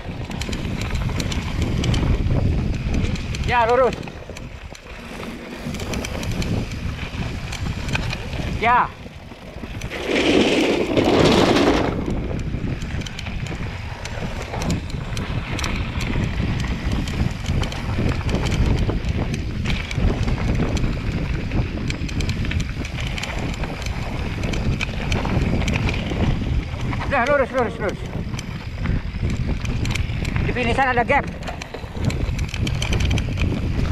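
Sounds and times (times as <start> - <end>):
bike chain and frame rattling: 0.0 - 33.9
wind rushing over microphone: 0.0 - 33.9
wheels clattering over wooden slats: 2.8 - 13.2.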